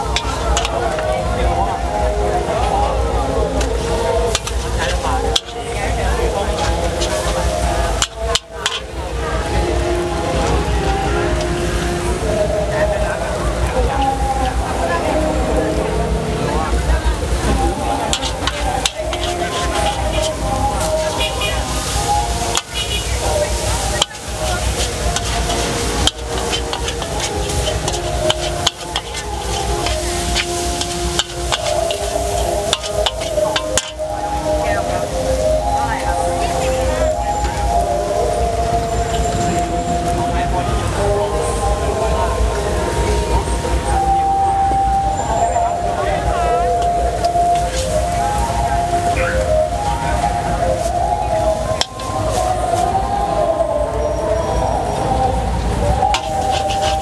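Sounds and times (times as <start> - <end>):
food sizzling in oil: 0.0 - 41.9, 46.8 - 53.5, 55.6 - 57.0
metal spatula scraping a wok: 4.3 - 8.9, 18.1 - 34.1, 56.1 - 57.0.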